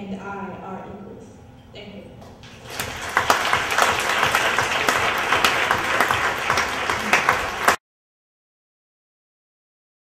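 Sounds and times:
audience applauding: 2.5 - 7.8.

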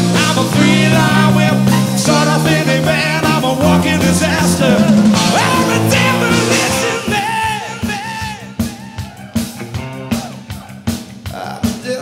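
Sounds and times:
person singing: 0.0 - 12.0
rock band playing live: 0.0 - 12.0.

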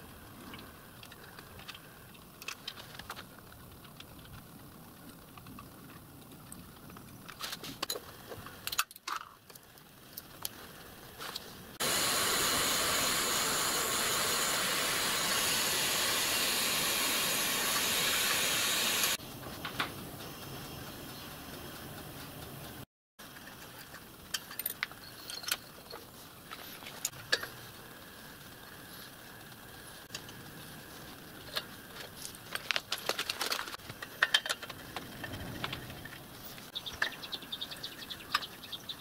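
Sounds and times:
loud steady hiss: 10.8 - 19.4.

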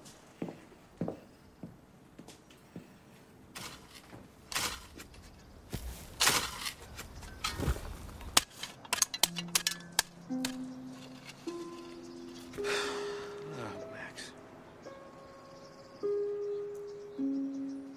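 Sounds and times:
spade digging into soil: 3.5 - 12.8.

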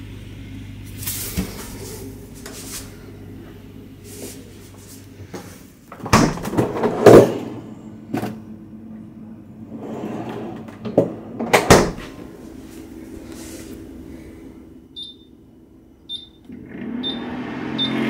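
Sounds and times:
refrigerator knocks and rattles: 5.9 - 7.4, 10.9 - 12.2
refrigerator door thud: 6.0 - 6.7, 11.5 - 12.2
drawer sliding: 6.0 - 7.6, 9.6 - 12.3.

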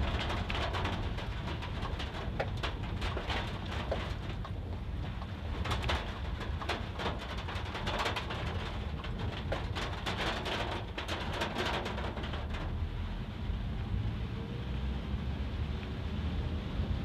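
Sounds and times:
raindrops ticking on car roof: 0.0 - 13.5
road and engine rumble: 0.0 - 17.0.

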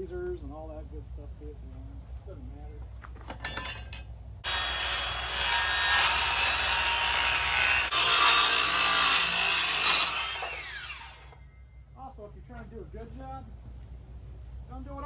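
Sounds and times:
jigsaw cutting wood: 4.4 - 11.3.

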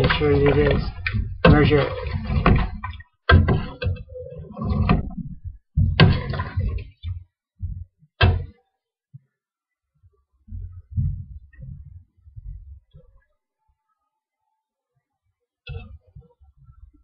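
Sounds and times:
sharp knocks: 5.8 - 6.6, 7.6 - 8.5.

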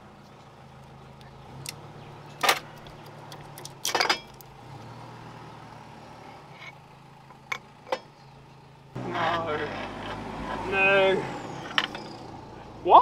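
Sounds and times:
metal parts clinking: 2.4 - 4.5, 11.6 - 12.2.

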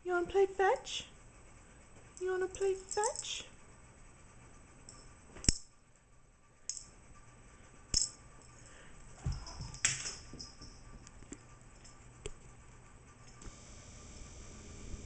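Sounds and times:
small bell jingling: 2.5 - 3.5, 8.0 - 11.0.

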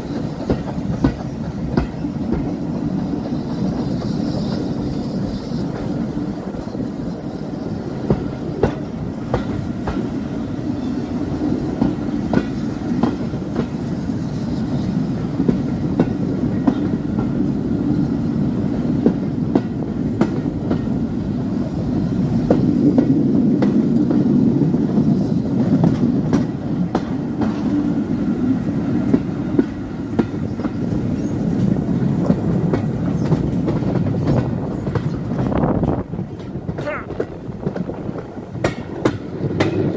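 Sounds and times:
wheels clicking over rail joints: 0.0 - 6.6, 7.9 - 10.4, 11.4 - 13.8, 28.5 - 39.9
train wheels rumbling on track: 0.0 - 39.9.

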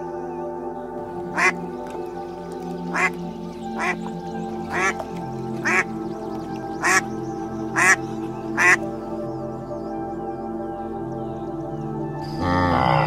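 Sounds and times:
background music: 0.0 - 13.0
ducks quacking: 1.3 - 1.6, 2.9 - 3.2, 3.8 - 5.9, 6.8 - 7.0, 7.8 - 8.9.

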